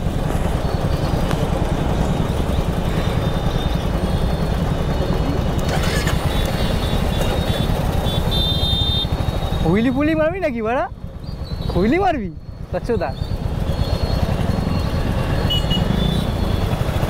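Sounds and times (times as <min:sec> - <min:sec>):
motorcycle engine at speed: 0:00.0 - 0:17.0.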